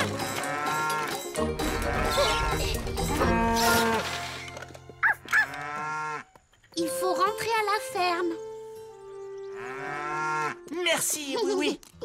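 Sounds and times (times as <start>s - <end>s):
light music: 0.0s - 5.3s, 6.8s - 12.0s
cartoon cow mooing: 1.7s - 4.1s.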